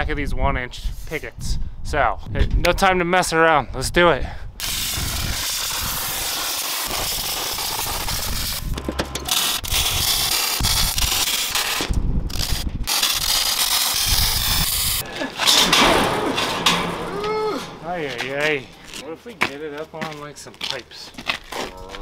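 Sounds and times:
hissing grinding noise: 4.6 - 19.0
metal clanks and knocks: 8.8 - 9.3, 15.0 - 19.0.

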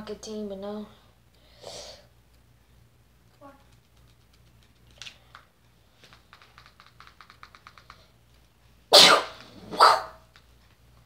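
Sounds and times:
light typing taps: 3.6 - 8.5.

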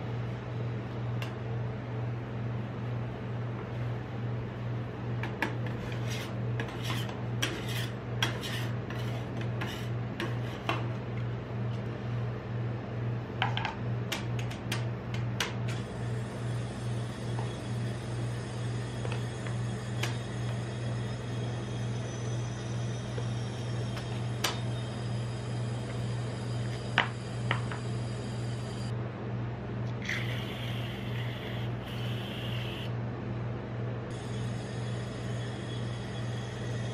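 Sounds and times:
machine humming: 0.0 - 29.1, 29.7 - 33.0, 34.0 - 36.9
metal spatula scraping steel plate: 5.7 - 10.7.

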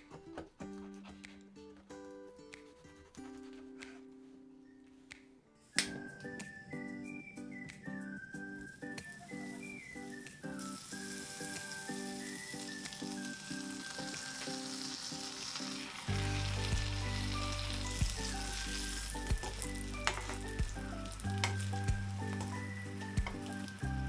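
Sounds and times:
background music: 0.0 - 24.0
butter sizzling in a frying pan: 9.2 - 24.0.

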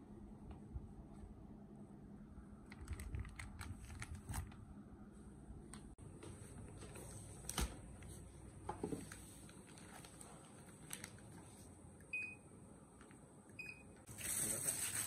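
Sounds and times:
plastic bags handled: 6.4 - 11.8, 14.1 - 15.0.

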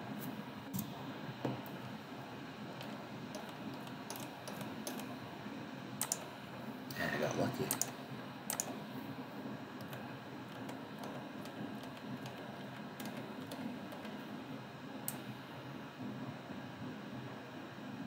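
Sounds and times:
low background hum: 0.0 - 18.0
computer mouse clicks: 2.8 - 5.1, 6.0 - 6.3, 7.7 - 8.8, 9.8 - 14.2.

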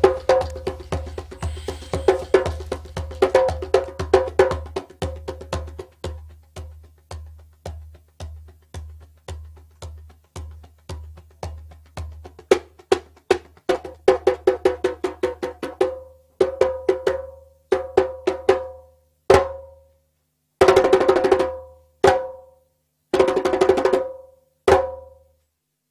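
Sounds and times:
ringing drum strikes: 0.0 - 3.3
drum rolls: 0.0 - 14.0.

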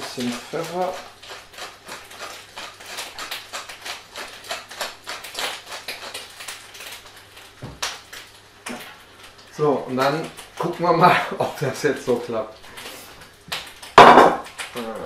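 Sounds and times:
pepper mill grinding: 0.0 - 8.3
loud knock: 14.0 - 14.5.

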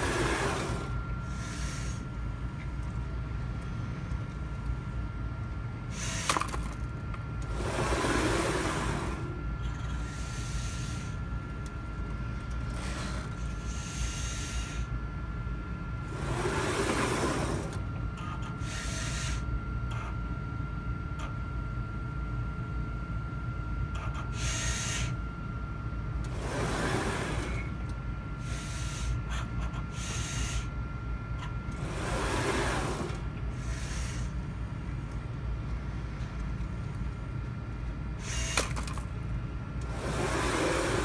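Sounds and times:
motors whirring: 0.0 - 2.1, 5.9 - 14.9, 16.0 - 19.5, 24.0 - 25.2, 26.2 - 30.7, 31.4 - 34.4, 38.2 - 39.1, 39.8 - 41.0
machine hum with high whine: 0.0 - 41.0.

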